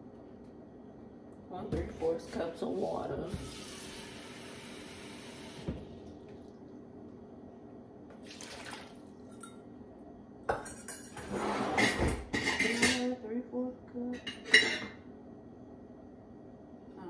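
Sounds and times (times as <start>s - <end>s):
kitchen tap running: 3.3s - 6.6s
pots and utensils clattering: 10.5s - 13.2s, 14.3s - 15.0s.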